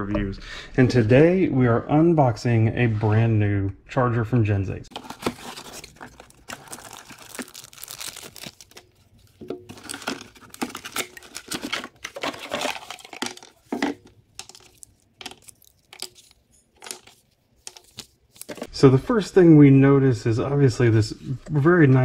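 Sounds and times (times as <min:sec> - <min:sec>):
cardboard box rustling: 0:04.9 - 0:18.7
plastic packaging crinkling: 0:04.9 - 0:18.7.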